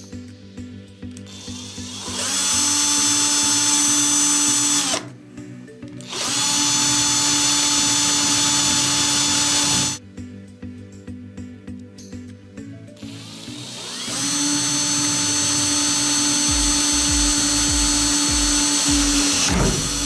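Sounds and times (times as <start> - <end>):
electric drill whining: 1.2 - 5.2, 6.0 - 10.0, 13.0 - 20.0.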